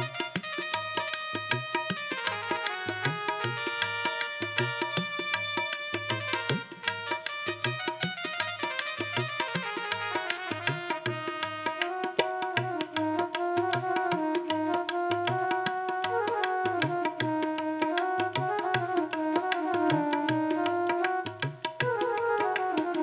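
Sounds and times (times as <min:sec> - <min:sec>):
tabla-style drum rhythm: 0:00.0 - 0:23.0
electronic keyboard melody: 0:10.0 - 0:23.0.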